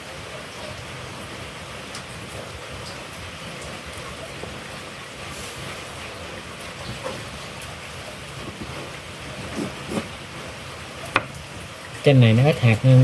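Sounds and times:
knife tapping on cutting board: 0:11.1 - 0:11.4.

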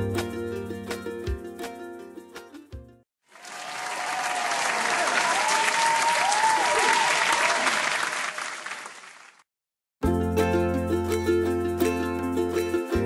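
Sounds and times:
crowd applauding and cheering: 0:03.3 - 0:09.4.

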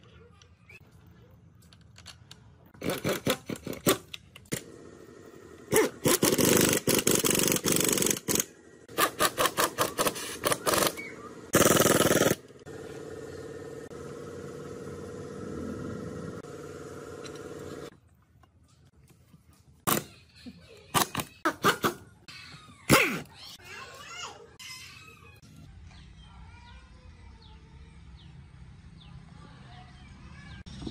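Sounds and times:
impact wrench hammering: 0:05.8 - 0:12.4.

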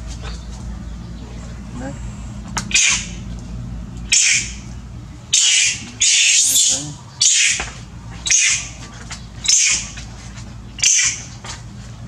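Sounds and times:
monkey screaming: 0:02.7 - 0:03.2, 0:04.1 - 0:04.7, 0:05.3 - 0:07.6, 0:08.2 - 0:08.7, 0:09.4 - 0:09.9, 0:10.8 - 0:11.2.

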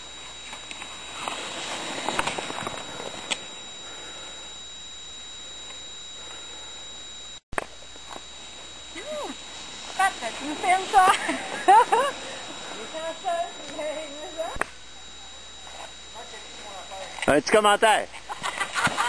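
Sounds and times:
ski scrapes and clicks: 0:00.4 - 0:03.4
skis sliding over snow: 0:00.4 - 0:03.4.

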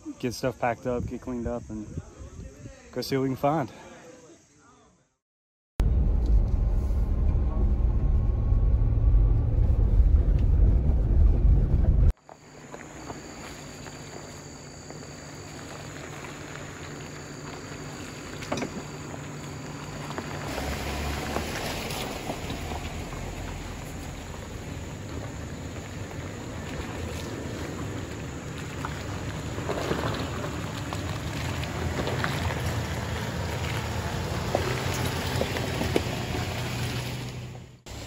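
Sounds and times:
vehicle engines crawling on gravel: 0:12.2 - 0:38.0.

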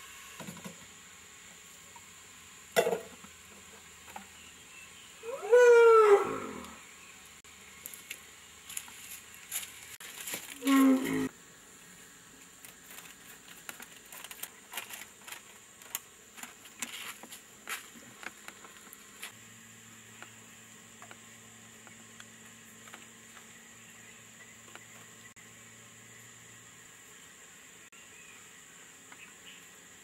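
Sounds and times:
elephant calf call: 0:05.2 - 0:06.8, 0:10.6 - 0:11.3.

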